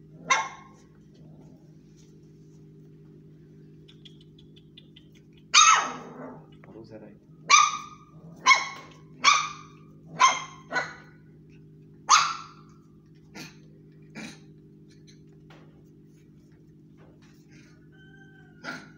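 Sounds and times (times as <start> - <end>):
steady low hum: 0.0 - 18.9
puppies yapping: 0.2 - 0.9, 3.7 - 6.7, 7.3 - 11.3, 12.0 - 15.4, 17.3 - 18.9.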